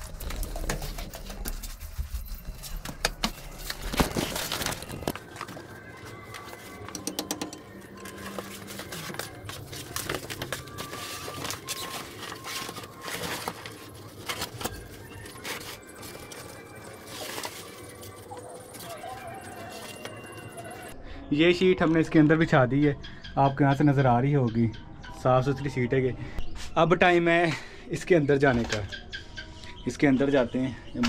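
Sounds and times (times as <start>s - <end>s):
plastic sheet rustling and crackling: 0.0s - 6.8s, 8.0s - 20.9s
knocks and clicks: 6.8s - 7.8s.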